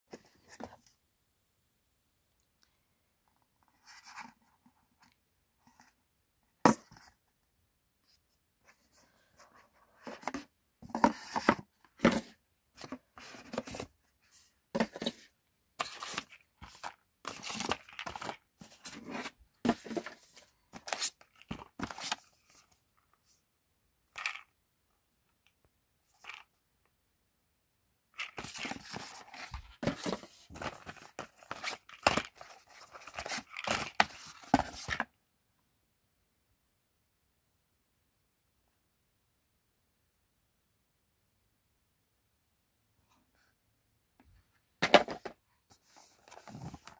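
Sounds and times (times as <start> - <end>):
cardboard boxes rustling and scraping: 8.8 - 22.6, 28.2 - 35.1, 44.8 - 46.9.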